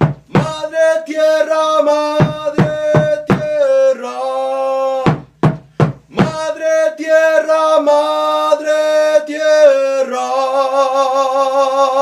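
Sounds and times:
large drum struck with beater: 0:00.0 - 0:00.7, 0:02.2 - 0:03.6, 0:05.1 - 0:06.4
man chanting: 0:00.3 - 0:05.3, 0:06.1 - 0:12.0.

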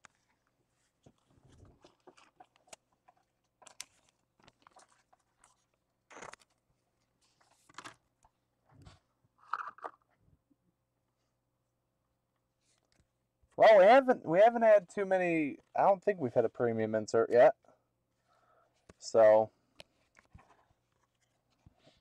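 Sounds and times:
cards rustling and scraping: 0:00.0 - 0:08.0, 0:19.8 - 0:22.0.

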